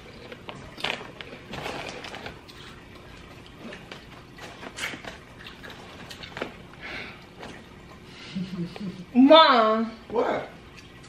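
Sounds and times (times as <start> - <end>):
plastic chip bag crinkling: 0.0 - 6.8.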